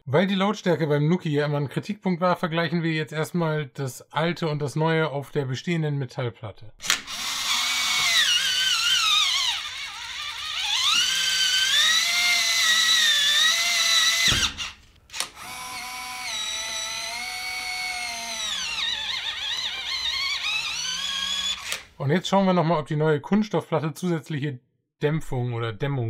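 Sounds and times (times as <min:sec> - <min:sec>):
smart lock motor whine: 0:06.8 - 0:21.9.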